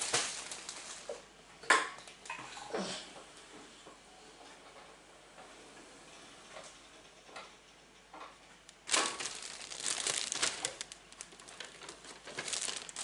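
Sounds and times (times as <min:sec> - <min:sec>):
paper bag crinkling and rustling: 0:00.0 - 0:01.2, 0:08.8 - 0:13.0.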